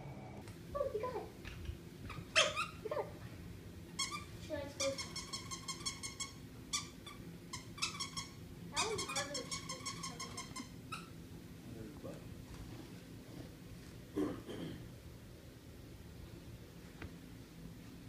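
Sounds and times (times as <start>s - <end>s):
dog toy squeaking: 2.1s - 2.8s, 3.9s - 11.2s.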